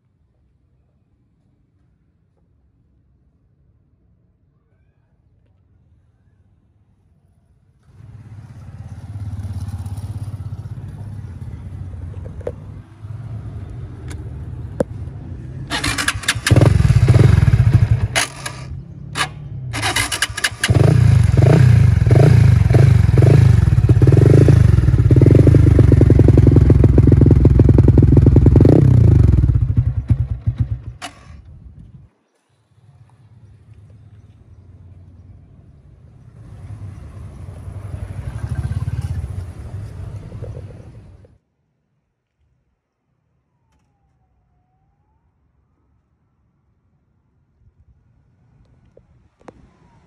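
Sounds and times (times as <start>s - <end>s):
motorcycle engine revving: 15.7s - 31.4s, 37.6s - 39.8s.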